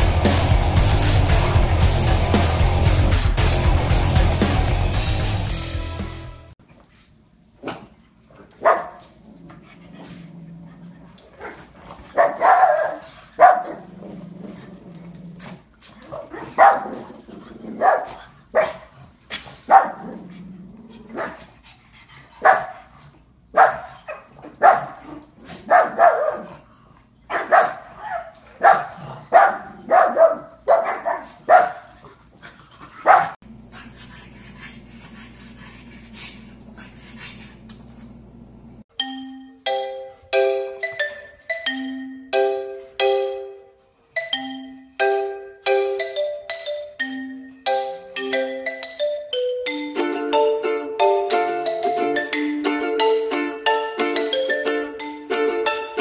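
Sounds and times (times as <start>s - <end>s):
dog barking: 8.6s - 9.0s, 12.2s - 13.9s, 16.4s - 17.0s, 17.8s - 18.9s, 19.7s - 20.1s, 21.1s - 21.4s, 22.4s - 22.8s, 23.6s - 26.6s, 27.3s - 32.0s, 33.0s - 33.4s.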